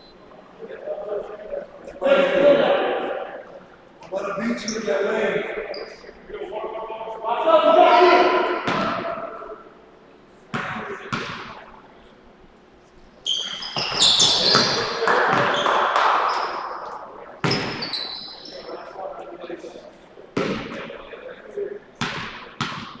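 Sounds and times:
sneaker squeaks: 13.2s - 18.8s
basketball bouncing on hardwood floor: 13.7s - 15.7s.

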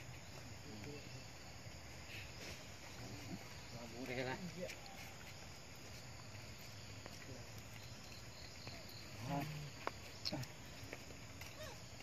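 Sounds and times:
insects buzzing and trilling: 0.0s - 12.0s.

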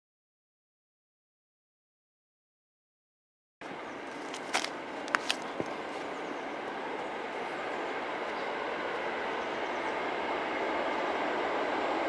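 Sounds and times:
train rumbling on rails: 3.6s - 12.0s.

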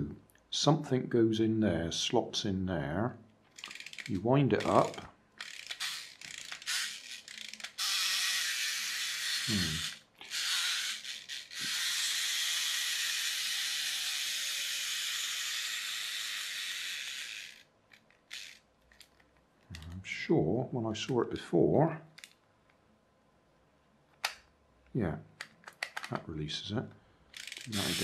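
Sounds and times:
clockwork motor whirring: 3.6s - 18.6s, 27.4s - 28.0s
clockwork toy winding clicks: 3.6s - 19.2s, 27.3s - 28.0s.

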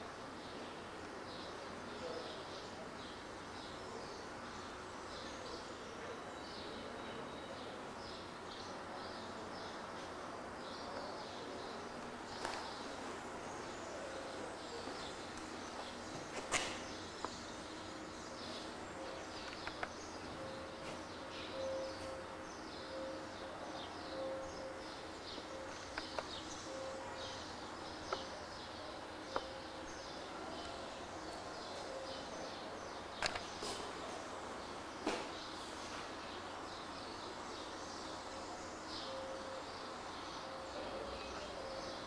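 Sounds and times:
small birds chirping: 0.2s - 42.0s
sharp clicks: 19.4s - 20.0s, 33.2s - 33.5s.

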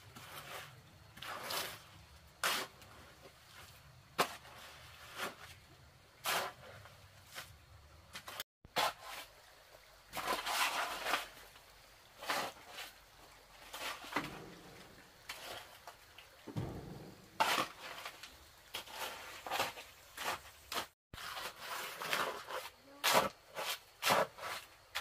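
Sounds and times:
hoe scraping wet concrete: 0.0s - 9.4s, 10.1s - 25.0s
heavy thud: 14.2s - 15.4s, 16.5s - 17.8s.

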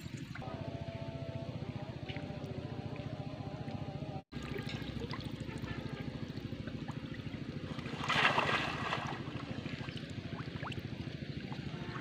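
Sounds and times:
water sloshing and splashing: 4.3s - 12.0s.

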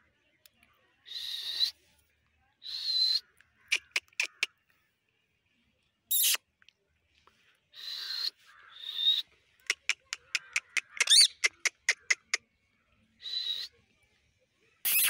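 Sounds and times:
parakeet screeches: 6.1s - 6.4s
parakeet short sharp chirps: 6.1s - 6.4s.

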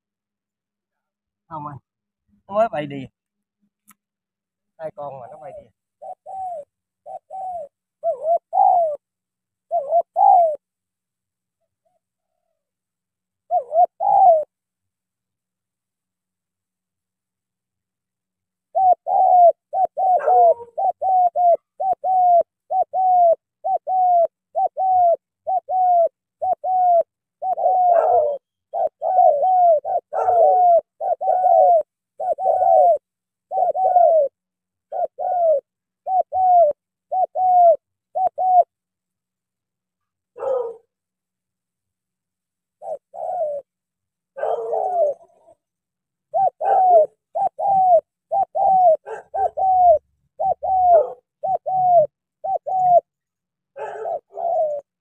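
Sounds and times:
dove cooing: 5.1s - 10.7s, 13.4s - 14.6s, 18.6s - 38.8s, 40.3s - 40.9s, 42.8s - 55.0s.

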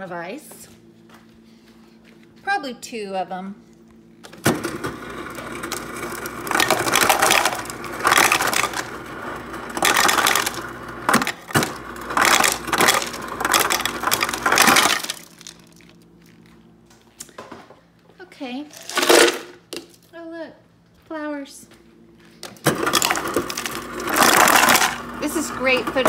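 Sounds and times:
ice clattering into plastic cup: 5.5s - 9.0s, 9.6s - 16.5s, 18.7s - 19.5s, 22.6s - 25.0s.

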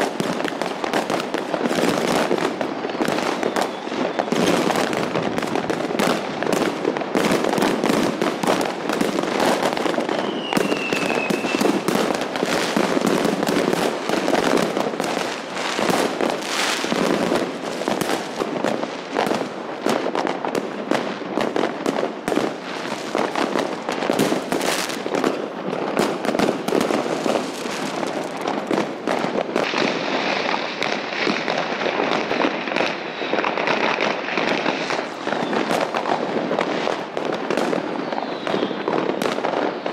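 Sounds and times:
fireworks crackling and banging: 0.0s - 39.9s
falling firework whistle: 2.2s - 5.6s, 9.4s - 12.8s, 32.0s - 39.9s.

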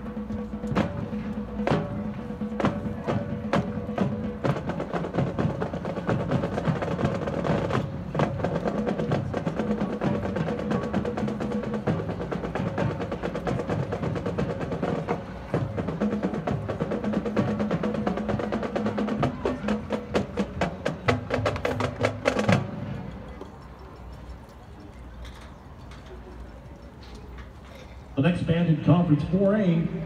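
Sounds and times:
marching band drum strikes: 0.0s - 23.2s
drum rolls: 0.0s - 27.0s.

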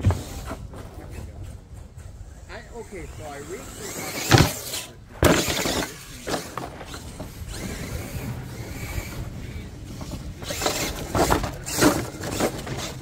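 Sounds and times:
toy truck tyres on dirt: 0.0s - 13.0s
clattering bursts: 3.9s - 7.8s, 10.0s - 13.0s.

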